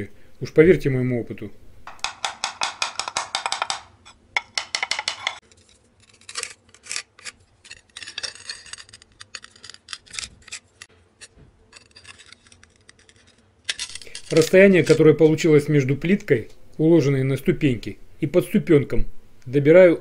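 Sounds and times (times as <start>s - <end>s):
scratchy strokes on tile: 5.1s - 15.0s
tile strip clicks and scratches: 6.0s - 15.1s.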